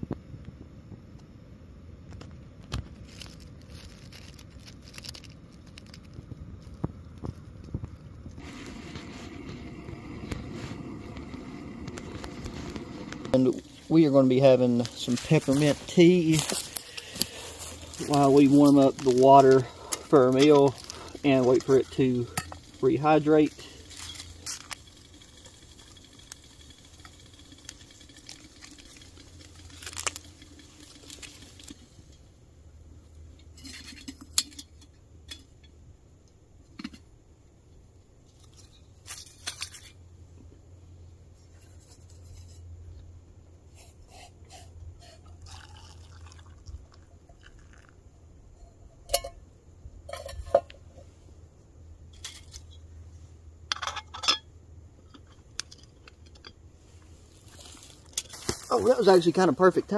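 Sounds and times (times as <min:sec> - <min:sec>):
paper packet crinkling: 0:02.7 - 0:07.7, 0:08.4 - 0:31.9, 0:45.4 - 0:46.7, 0:57.3 - 0:59.9
metal pot clinks and knocks: 0:49.1 - 0:49.4, 0:50.0 - 0:50.8, 0:53.7 - 0:54.5.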